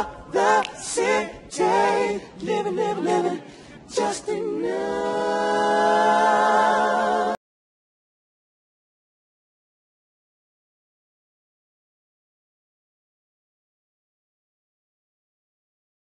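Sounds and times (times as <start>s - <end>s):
a cappella singing: 0.0s - 7.4s.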